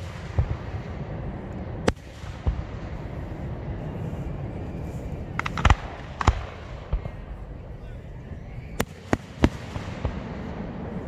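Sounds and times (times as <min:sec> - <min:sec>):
low rumble: 0:00.0 - 0:11.0
firework cracks: 0:05.3 - 0:07.3.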